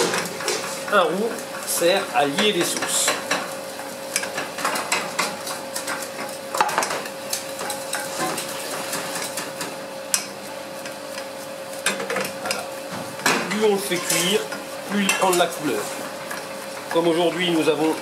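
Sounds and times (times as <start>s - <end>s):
sharp knocks on a pan: 6.6s - 7.0s.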